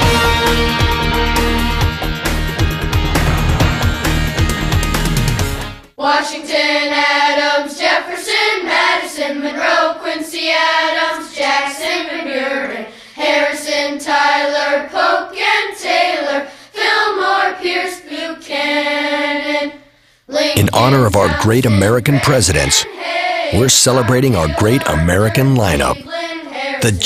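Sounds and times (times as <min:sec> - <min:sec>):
voices singing slow melody: 0:06.0 - 0:27.0.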